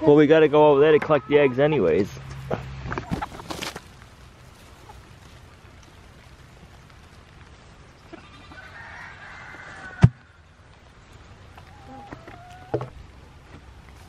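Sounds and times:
hens calling: 0:08.0 - 0:10.5, 0:11.5 - 0:13.0
goat bleating: 0:08.1 - 0:08.6.

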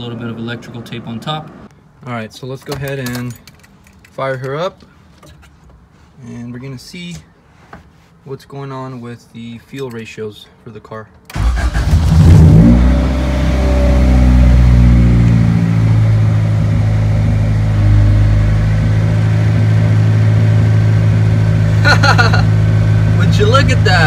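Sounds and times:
car engine idling: 0:13.6 - 0:24.0.

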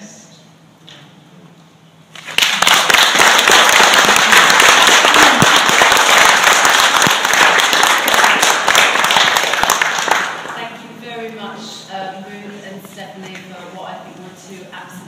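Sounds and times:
audience applauding: 0:02.2 - 0:10.6.

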